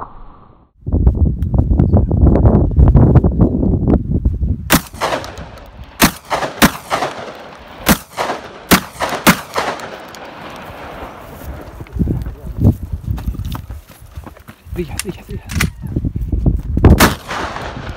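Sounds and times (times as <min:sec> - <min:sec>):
wind buffeting microphone: 0:00.8 - 0:08.4, 0:09.0 - 0:17.9
gunshots with echo: 0:04.7 - 0:11.1, 0:17.0 - 0:17.9.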